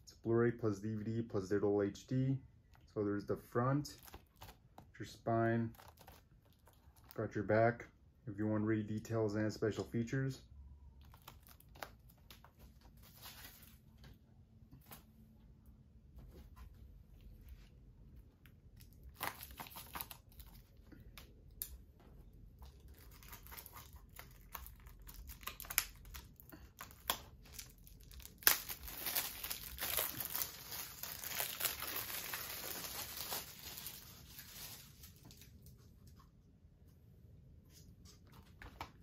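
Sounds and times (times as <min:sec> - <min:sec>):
plastic wrap crinkling and tearing: 0:03.9 - 0:04.8, 0:05.6 - 0:07.2, 0:11.0 - 0:13.8, 0:18.8 - 0:21.2, 0:22.6 - 0:35.7.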